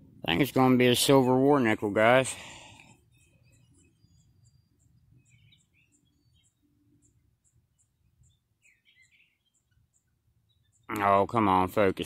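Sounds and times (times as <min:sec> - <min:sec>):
lower chirps: 0:02.3 - 0:11.0
faint high chirps: 0:03.0 - 0:11.0.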